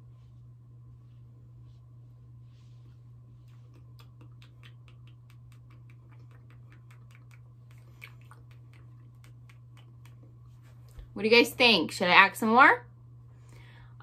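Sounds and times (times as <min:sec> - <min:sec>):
faint low hum: 0:00.0 - 0:14.0
person making mouth clicks: 0:03.4 - 0:10.3.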